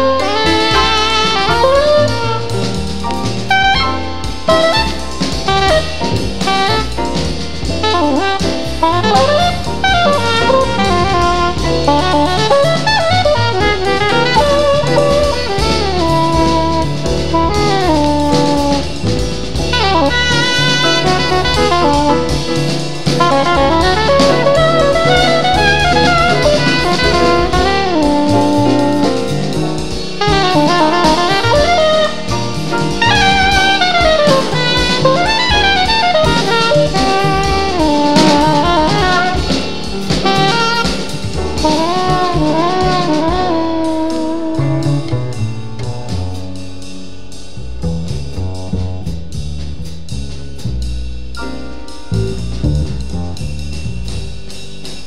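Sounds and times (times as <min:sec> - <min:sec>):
saxophone melody with vibrato: 0:00.0 - 0:02.7, 0:03.5 - 0:07.0, 0:07.8 - 0:29.5, 0:30.1 - 0:45.1
drum kit: 0:00.0 - 0:55.0
stepping bass line: 0:00.0 - 0:55.0.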